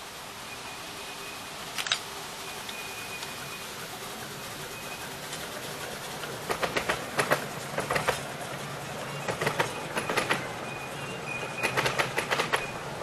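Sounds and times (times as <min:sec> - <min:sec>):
train wheels clicking over rail joints: 0:01.7 - 0:13.0
thin wheel squeal: 0:02.4 - 0:03.8, 0:09.0 - 0:12.9.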